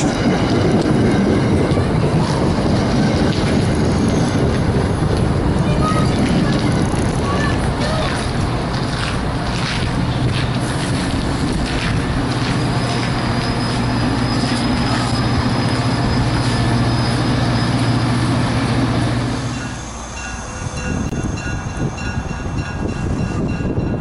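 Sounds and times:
wheels squealing: 0:00.0 - 0:08.4, 0:10.1 - 0:22.6
train rolling past: 0:00.0 - 0:24.0.

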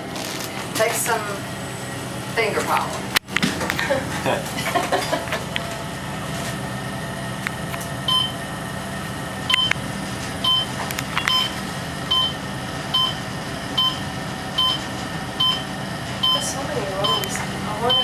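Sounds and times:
elevator hum: 0:00.0 - 0:18.0
elevator electronic beep: 0:08.0 - 0:08.5, 0:09.4 - 0:09.8, 0:10.4 - 0:18.0.

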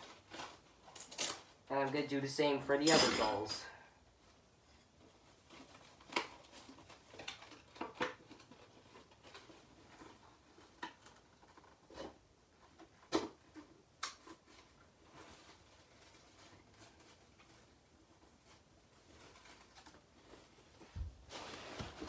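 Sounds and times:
cloth rustling: 0:15.1 - 0:22.0.

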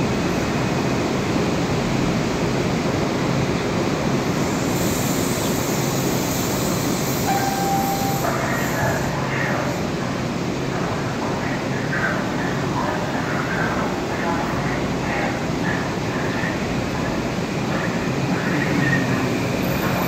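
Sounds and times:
train rumbling on rails: 0:00.0 - 0:20.0
train brakes squealing: 0:04.4 - 0:09.2.

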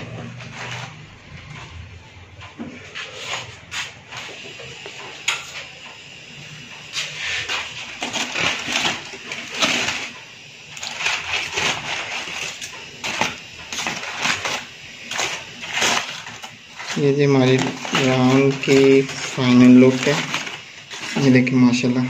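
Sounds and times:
aluminium foil crinkling: 0:07.1 - 0:22.0.

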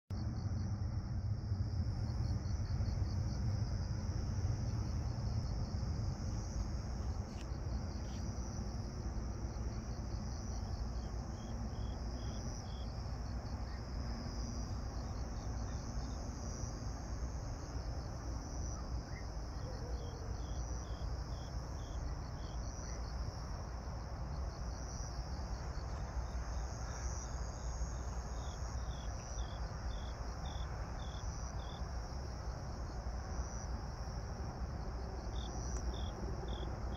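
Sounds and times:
jet airliner rumble overhead: 0:00.2 - 0:20.4
insects trilling: 0:00.2 - 0:36.9.

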